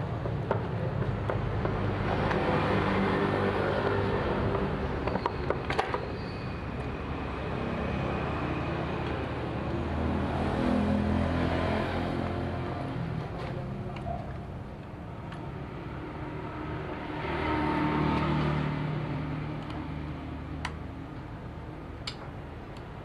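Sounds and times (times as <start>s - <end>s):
sharp metallic clicks: 21.9s - 23.0s.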